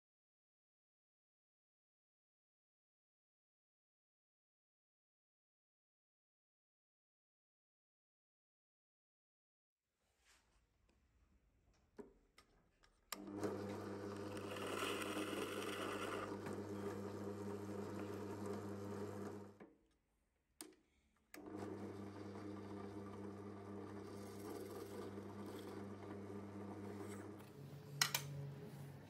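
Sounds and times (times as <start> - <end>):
drill press motor humming: 13.2 - 19.6, 21.4 - 27.6
drill bit cutting wood: 13.6 - 18.4
click: 20.6 - 21.5.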